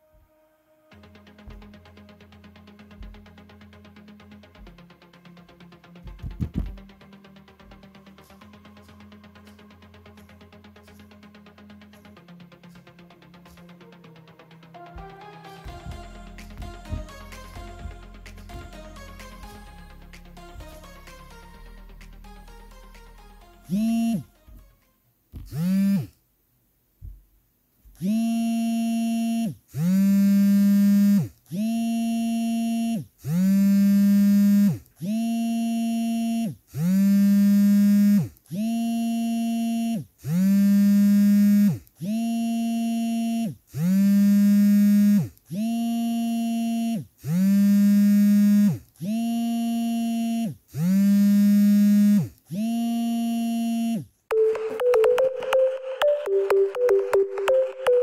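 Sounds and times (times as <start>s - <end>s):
phone vibrating buzzing pulses: 15.7s - 18.7s, 23.6s - 24.4s, 25.4s - 26.2s, 27.9s - 58.0s.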